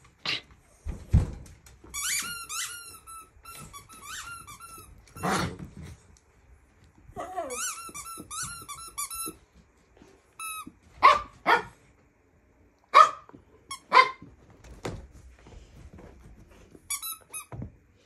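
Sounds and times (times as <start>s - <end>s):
squeaky dog toy squeaking: 1.9s - 5.4s, 7.4s - 9.4s
dog barking: 11.0s - 11.8s, 12.9s - 13.3s, 13.9s - 14.2s.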